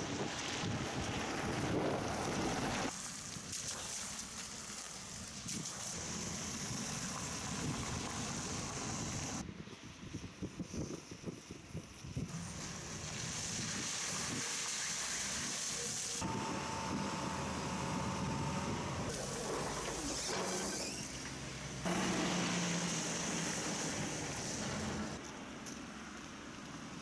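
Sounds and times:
road-works machinery: 0.0 - 9.4, 12.3 - 27.0
traffic on a wet road: 0.0 - 9.4, 12.3 - 27.0.

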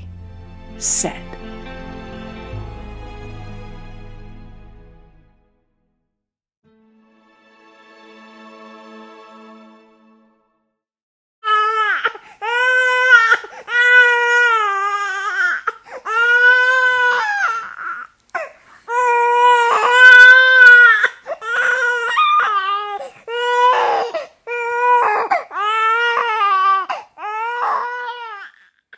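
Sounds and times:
infant crying: 11.4 - 28.9.

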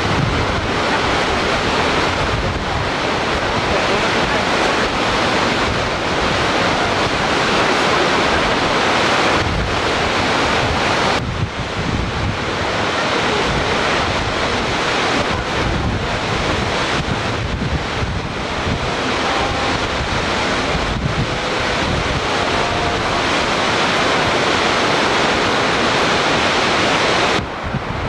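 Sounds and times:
water rushing from dam gates: 0.0 - 28.0
wind buffeting microphone: 0.0 - 28.0.

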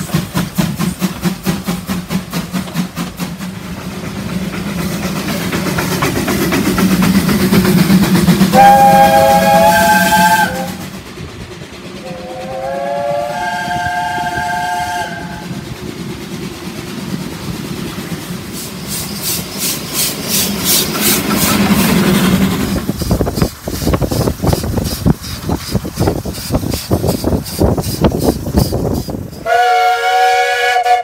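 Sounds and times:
steam locomotive running: 0.0 - 31.0
train wheels clicking: 0.0 - 31.0
steam locomotive whistle: 8.5 - 10.9, 12.0 - 15.6, 29.3 - 31.0.

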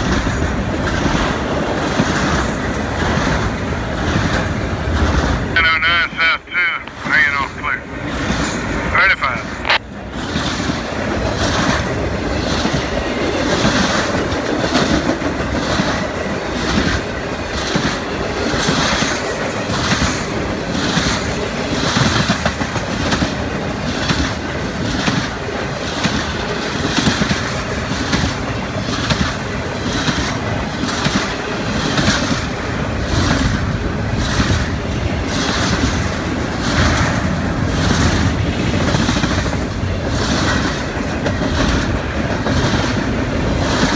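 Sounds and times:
freight train rumbling: 0.0 - 43.9
wheels clacking over rail joints: 9.6 - 43.9.

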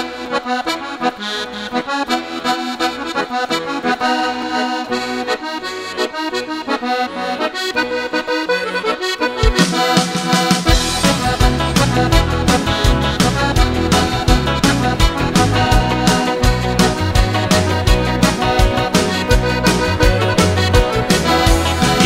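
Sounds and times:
lively dance-band instrumental: 0.0 - 22.0.

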